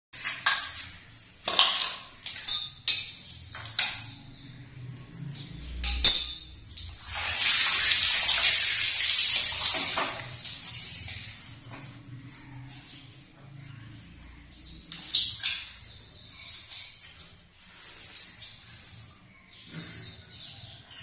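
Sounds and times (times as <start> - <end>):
metallic clinks and knocks: 1.4 - 4.2, 5.4 - 6.8.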